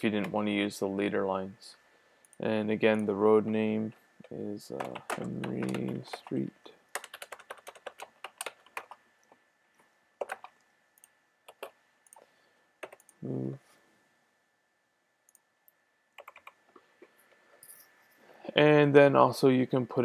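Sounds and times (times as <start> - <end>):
keystrokes: 4.2 - 9.4, 10.2 - 12.2, 12.8 - 13.2, 16.2 - 16.8
computer mouse clicks: 7.0 - 13.2.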